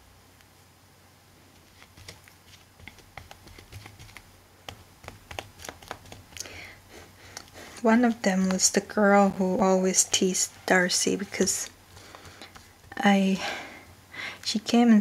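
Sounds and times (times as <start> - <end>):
glue brush taps and scratches: 1.6 - 6.5, 10.0 - 13.1.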